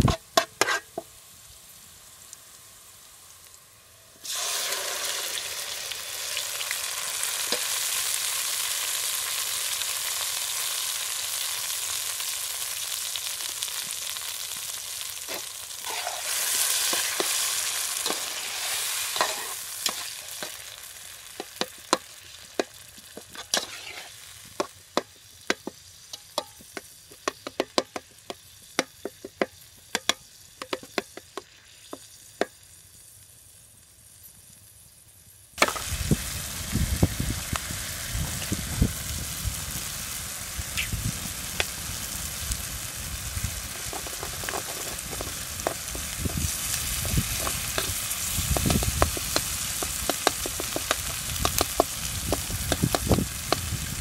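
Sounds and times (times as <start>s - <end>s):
metal spoon scraping pan: 0.0s - 1.0s, 15.3s - 20.6s, 22.6s - 24.2s, 47.3s - 51.0s
food sizzling in hot oil: 0.0s - 54.0s.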